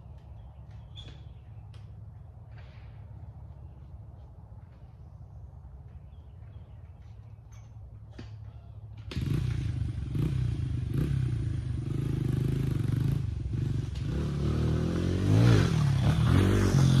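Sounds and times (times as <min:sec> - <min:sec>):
pit bike engine revving: 0:09.1 - 0:17.0.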